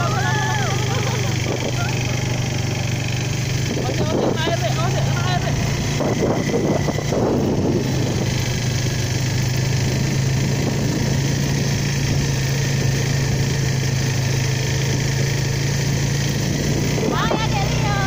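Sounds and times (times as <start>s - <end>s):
quad bike engine running: 0.0s - 18.0s.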